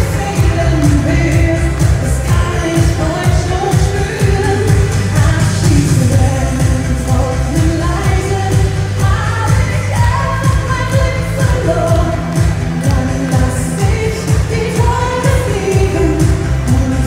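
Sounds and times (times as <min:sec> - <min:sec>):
person singing into a microphone: 0:00.0 - 0:17.0
pop music with steady beat: 0:00.0 - 0:17.0.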